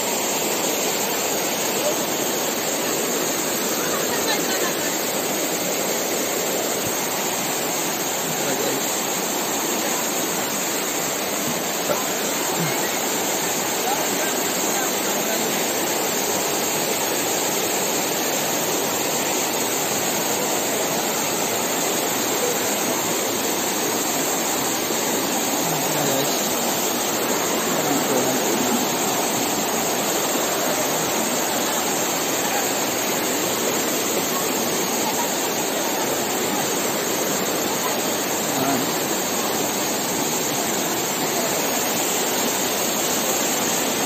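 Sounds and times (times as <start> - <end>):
stream rushing over rocks: 0.0 - 44.0.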